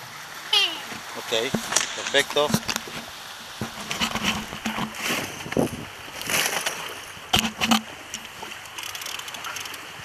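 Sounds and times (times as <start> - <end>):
water sloshing against boat hull: 0.4 - 10.0.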